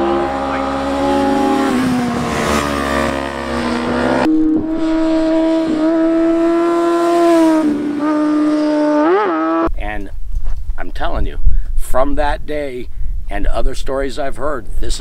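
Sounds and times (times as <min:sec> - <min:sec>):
motorcycle engines running hard: 0:00.0 - 0:09.7.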